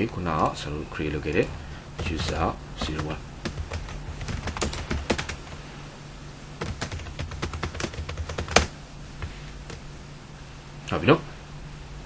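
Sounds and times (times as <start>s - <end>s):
faint low hum: 0.0s - 12.0s
computer keyboard typing: 0.4s - 5.6s, 6.6s - 9.8s.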